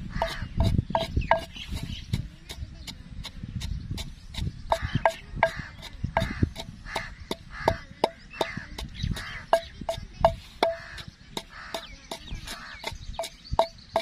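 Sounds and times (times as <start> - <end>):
pestle pounding in a mortar: 0.0 - 14.0
pestle scraping in a mortar: 0.0 - 14.0.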